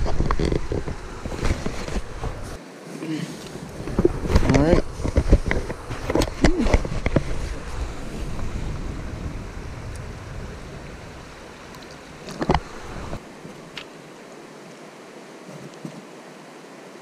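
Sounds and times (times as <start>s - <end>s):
wind rumbling on microphone: 0.0s - 2.6s, 3.5s - 13.8s
running creek water: 0.0s - 17.0s.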